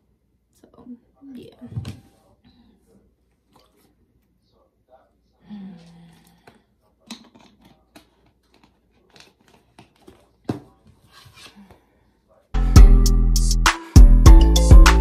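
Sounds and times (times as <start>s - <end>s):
plastic bottle clicking and crinkling: 6.4s - 10.9s.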